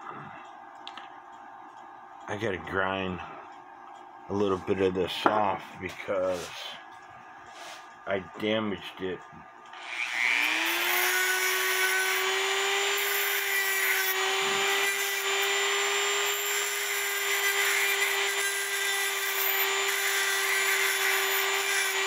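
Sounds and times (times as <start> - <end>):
rotary tool whining: 9.7 - 22.0.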